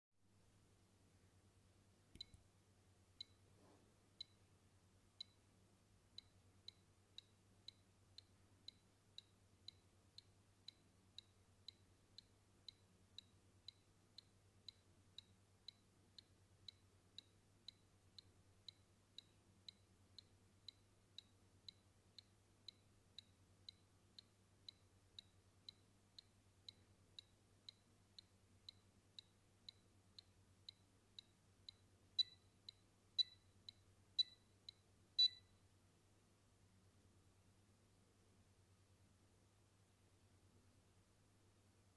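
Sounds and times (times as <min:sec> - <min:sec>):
faint electrical hum: 0:00.2 - 0:41.9
electronic buzzer ticks: 0:28.7 - 0:35.4.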